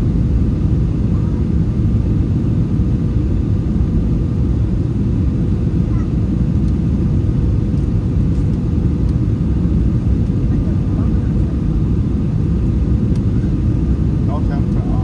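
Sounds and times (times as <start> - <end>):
airplane engine rumble in cabin: 0.0 - 15.0.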